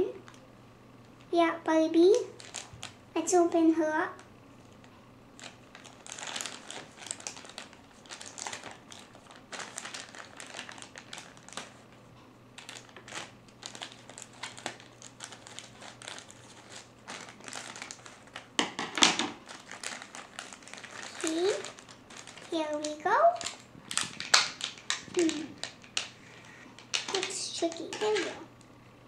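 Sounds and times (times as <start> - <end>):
plastic bag crinkling: 2.1 - 3.0, 4.2 - 12.0, 12.6 - 28.5
scissors cutting plastic: 19.8 - 26.1, 26.8 - 28.4.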